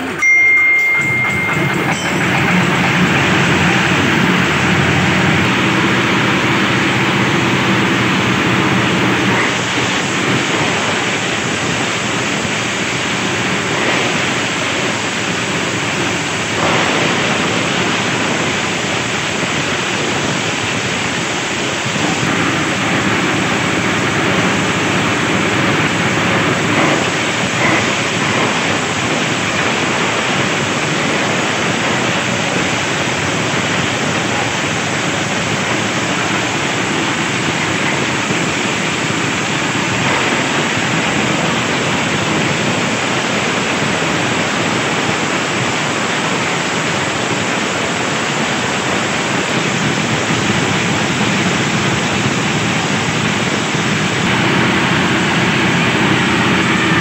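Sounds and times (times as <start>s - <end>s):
compost shredder chopping branches: 2.1s - 21.0s, 49.5s - 57.0s.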